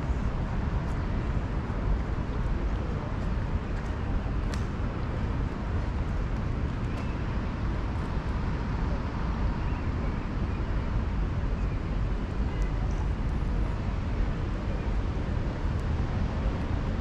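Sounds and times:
city traffic rumble: 0.0s - 17.0s.

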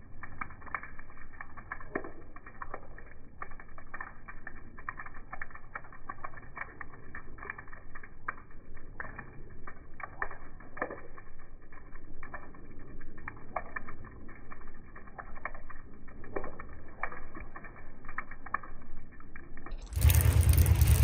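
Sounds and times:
water dripping onto concrete: 0.0s - 21.0s
low rumble: 19.6s - 21.0s.

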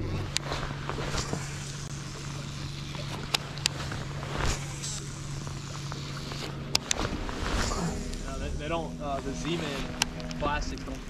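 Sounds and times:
boat motor humming: 0.0s - 11.0s
sharp clicks: 6.7s - 7.0s.

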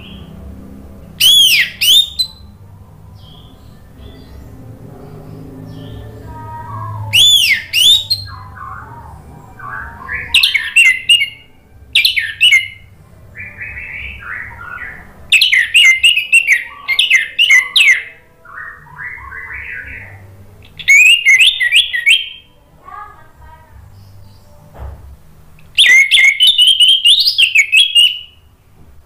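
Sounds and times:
bird singing whistled phrases: 1.2s - 2.5s, 6.6s - 22.5s, 25.8s - 28.4s
soft bird warbling: 5.3s - 22.5s.

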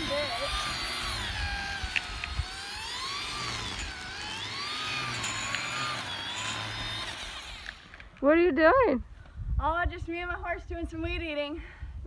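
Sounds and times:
string trimmer cutting grass: 0.0s - 8.3s.

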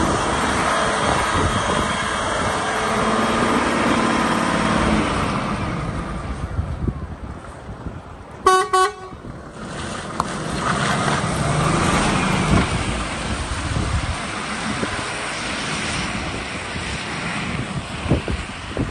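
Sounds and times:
tyres hissing on wet road: 0.0s - 6.6s, 9.3s - 18.9s
diesel truck engine passing: 0.0s - 18.9s
truck horn toots: 8.4s - 9.2s.

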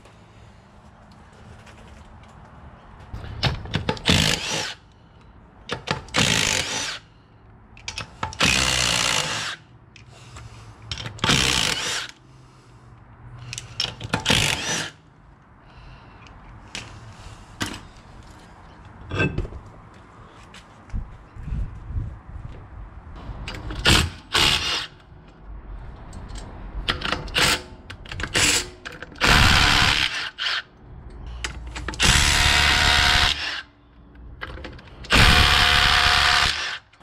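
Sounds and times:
small metallic clicks: 7.7s - 8.5s
impact wrench running: 32.0s - 33.6s, 35.1s - 36.8s.

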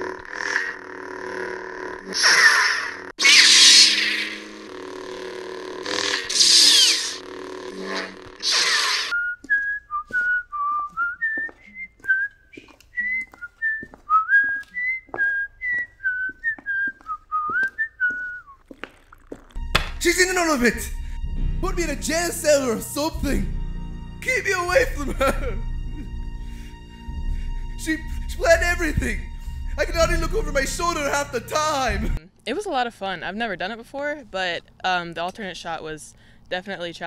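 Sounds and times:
person whistling a tune: 9.1s - 18.6s.

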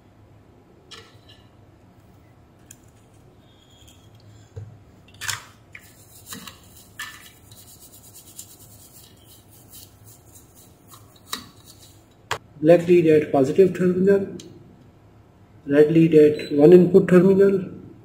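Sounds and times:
brush scrubbing circuit board: 5.8s - 12.1s.

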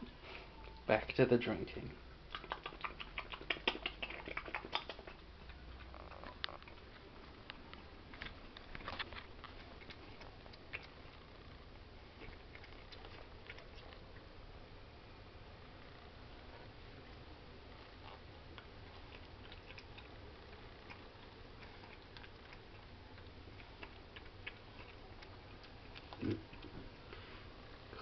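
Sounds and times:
cat lapping liquid: 2.3s - 7.0s, 18.0s - 27.2s.

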